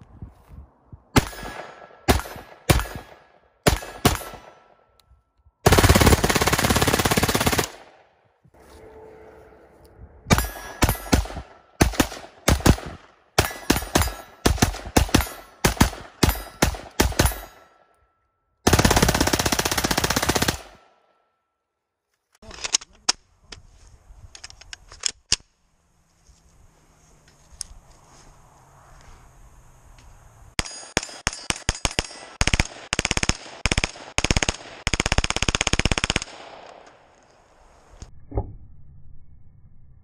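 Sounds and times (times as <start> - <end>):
automatic gunfire bursts: 5.6 - 7.9, 18.6 - 20.8, 31.0 - 36.7.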